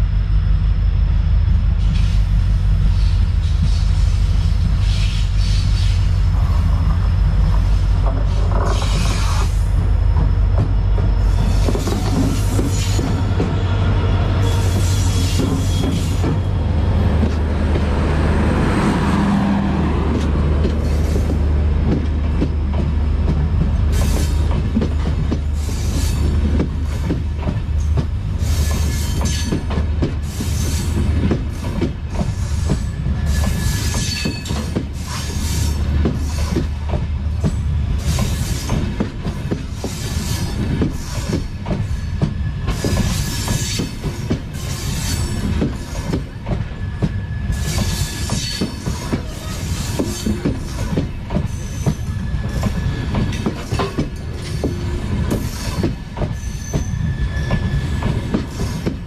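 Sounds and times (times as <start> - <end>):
train coaches rumbling past: 0.0 - 59.0
train wheel squeal: 1.8 - 17.4, 19.0 - 59.0.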